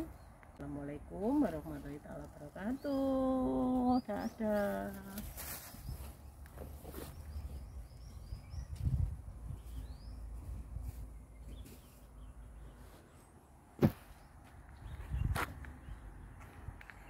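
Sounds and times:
small bird chirping: 2.6s - 13.3s.

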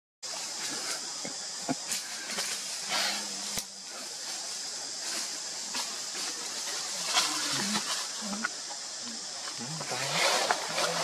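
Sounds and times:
high outdoor hiss: 0.2s - 11.0s.

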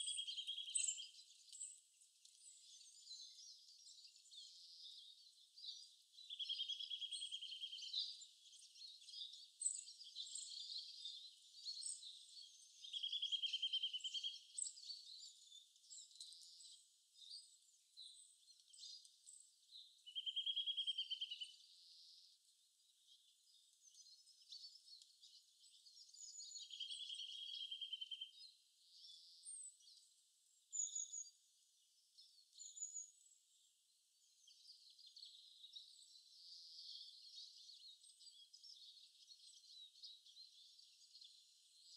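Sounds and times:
bird trill: 0.0s - 1.2s, 12.8s - 14.7s, 20.1s - 21.6s, 26.2s - 28.4s.

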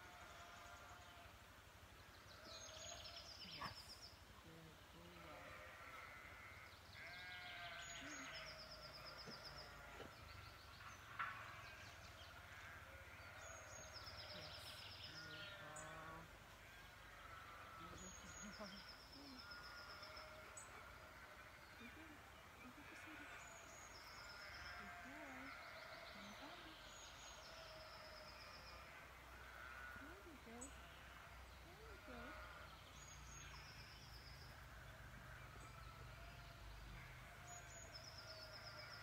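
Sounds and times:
bleat-like animal calls: 5.1s - 10.1s, 24.4s - 26.7s, 27.4s - 32.7s, 37.0s - 37.7s.

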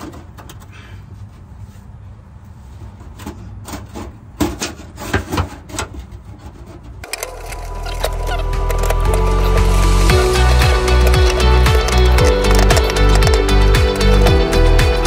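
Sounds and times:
metal car parts scraping and knocking: 0.0s - 1.6s, 2.6s - 9.3s
music: 7.2s - 15.0s.

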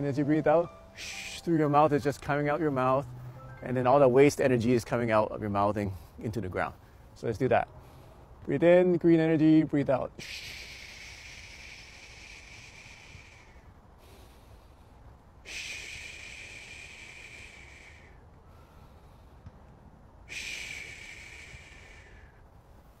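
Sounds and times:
man exhaling shhh: 1.0s - 1.4s, 10.2s - 19.4s, 20.2s - 23.0s
quiet in-breaths: 3.0s - 3.6s, 5.8s - 8.5s, 10.2s - 23.0s.

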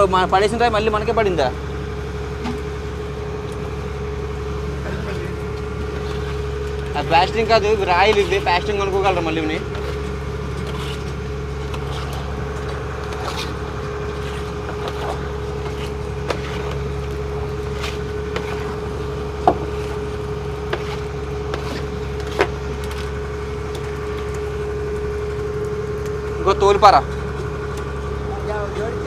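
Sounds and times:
boat engine droning: 0.0s - 29.0s.

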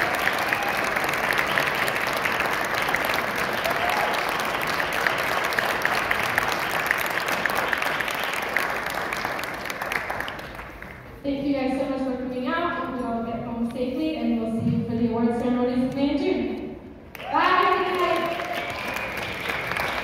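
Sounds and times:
audience applauding: 0.0s - 11.1s, 17.1s - 20.0s.

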